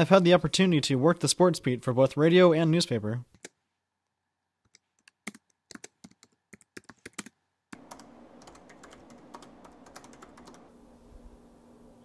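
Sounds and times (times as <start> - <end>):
laptop keyboard typing: 4.6 - 10.8
steady background hiss: 7.8 - 12.0.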